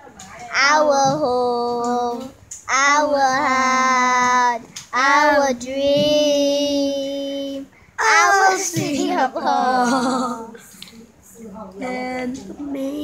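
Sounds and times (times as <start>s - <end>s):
child singing held notes: 0.5s - 10.6s.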